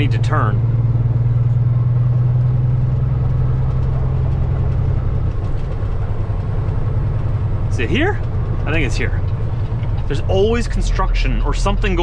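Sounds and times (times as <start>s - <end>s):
truck diesel engine droning: 0.0s - 12.0s.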